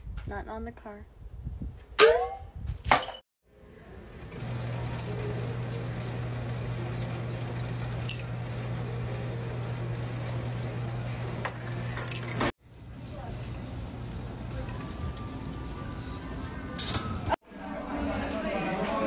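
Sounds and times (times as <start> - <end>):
ice dispenser motor humming: 4.0 - 12.5.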